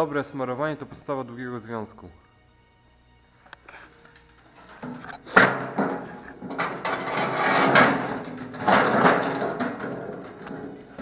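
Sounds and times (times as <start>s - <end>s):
scraping and crunching: 3.7s - 11.0s
rustling and knocking: 4.5s - 11.0s.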